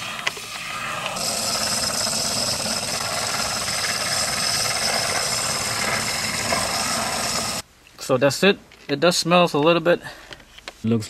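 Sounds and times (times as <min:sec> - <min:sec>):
aerosol can spraying hiss: 0:00.0 - 0:02.0.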